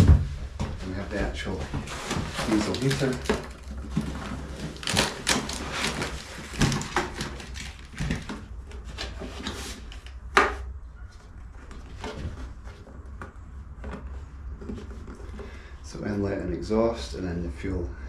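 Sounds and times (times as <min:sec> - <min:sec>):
polystyrene foam scraping: 0:01.8 - 0:08.2.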